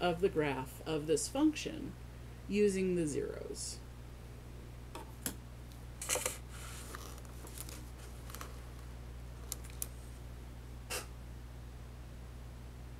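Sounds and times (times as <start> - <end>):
low electrical hum: 0.0 - 12.9
paper rustling and clicks: 6.0 - 10.0.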